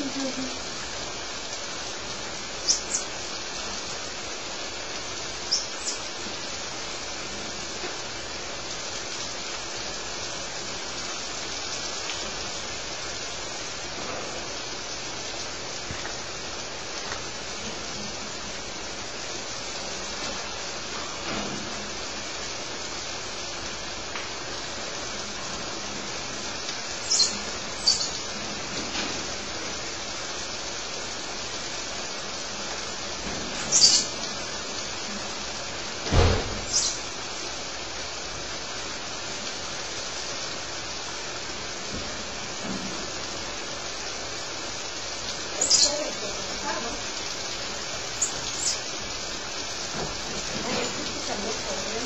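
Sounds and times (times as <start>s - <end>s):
steady hiss: 0.0s - 52.0s
monkeys chirping: 2.6s - 3.1s, 27.0s - 28.2s, 33.7s - 34.2s, 45.5s - 49.2s.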